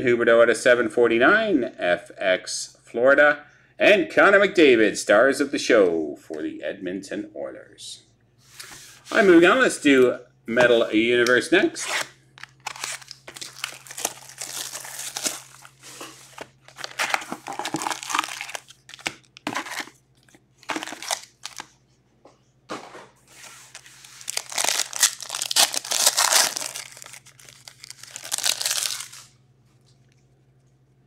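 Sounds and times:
wrapper tearing open: 0:11.9 - 0:20.0, 0:20.6 - 0:21.7, 0:23.6 - 0:29.4
foil wrappers crinkling: 0:12.4 - 0:21.7, 0:23.3 - 0:29.4.

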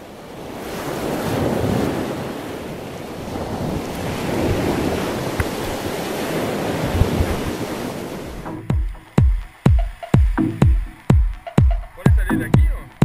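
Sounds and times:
wind buffeting microphone: 0:00.0 - 0:08.6
waves washing onto beach: 0:00.0 - 0:10.8.

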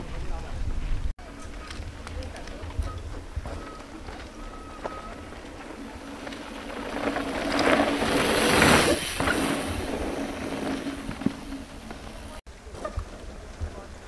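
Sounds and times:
mountain bike passing by: 0:00.0 - 0:14.0.

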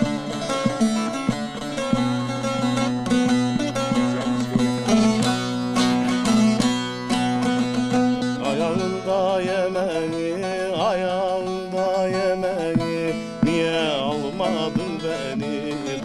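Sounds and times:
long-necked lute plucked melody: 0:00.0 - 0:16.0.

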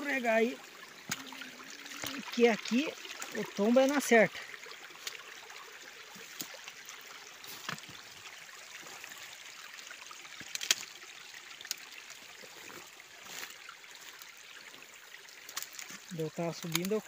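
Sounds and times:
stream trickling: 0:00.0 - 0:17.0
footsteps snapping through undergrowth: 0:10.4 - 0:10.9, 0:15.4 - 0:17.0.

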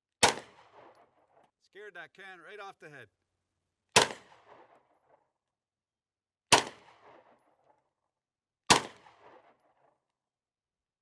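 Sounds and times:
pistol shot with echo: 0:00.2 - 0:01.0, 0:03.9 - 0:04.9, 0:06.5 - 0:07.4, 0:08.7 - 0:09.6.

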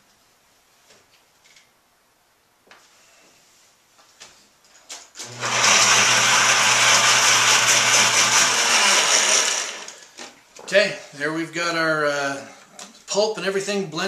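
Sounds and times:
blender motor grinding: 0:05.2 - 0:10.1.

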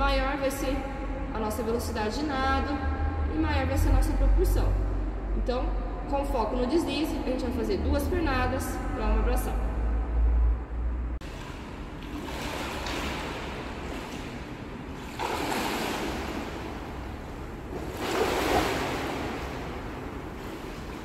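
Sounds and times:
water splashing from swimmer: 0:11.2 - 0:21.0.

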